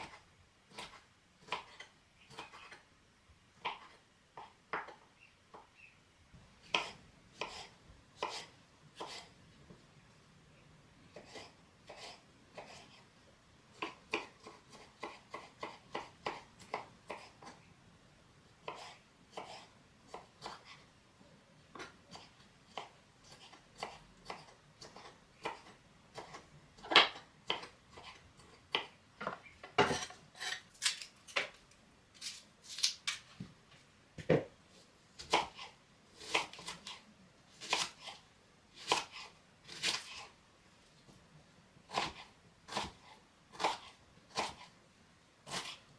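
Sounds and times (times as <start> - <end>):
knife chopping on cutting board: 6.7 - 9.3, 11.1 - 12.9, 13.8 - 17.5, 18.6 - 20.6, 35.2 - 37.0, 38.8 - 40.2, 41.9 - 44.7.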